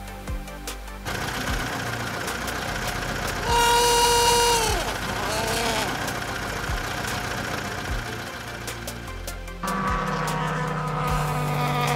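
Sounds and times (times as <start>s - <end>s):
engine running: 0.8s - 11.9s
vehicle horn honking: 3.4s - 6.2s.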